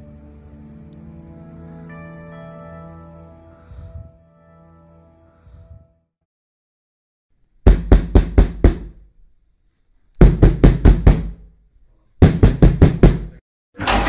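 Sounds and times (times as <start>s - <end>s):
knocking on wooden door: 7.7s - 8.9s, 10.2s - 11.4s, 12.2s - 13.3s.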